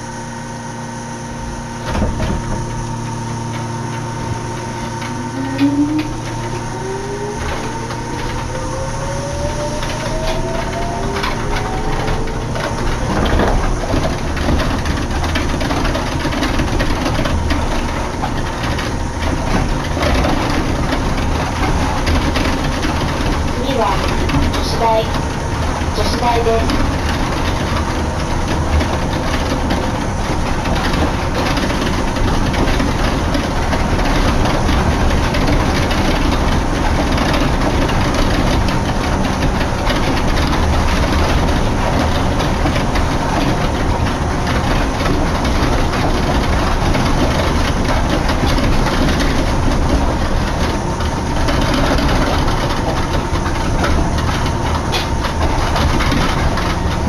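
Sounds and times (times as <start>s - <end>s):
train cabin rumble and hiss: 1.0s - 57.0s
faint even whine: 1.2s - 13.9s.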